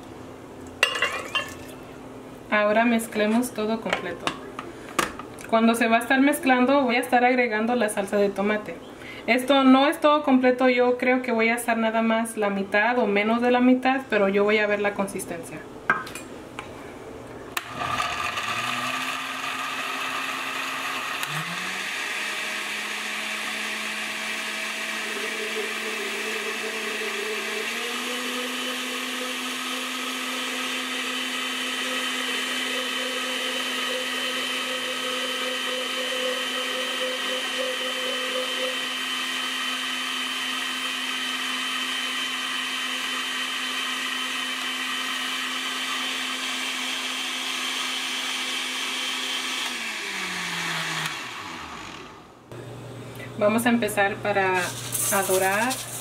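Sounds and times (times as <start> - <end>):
blender running: 17.6 - 53.3, 54.3 - 56.0.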